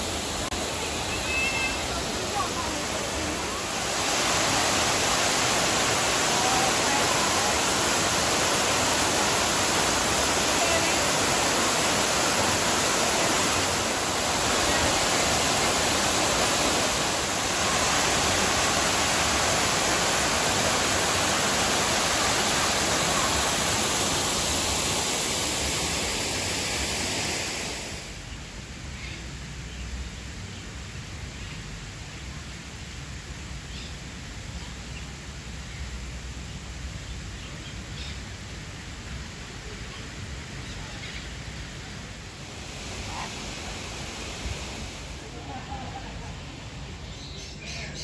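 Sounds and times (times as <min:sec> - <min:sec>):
waterfall rushing: 0:00.0 - 0:28.3, 0:38.0 - 0:48.0.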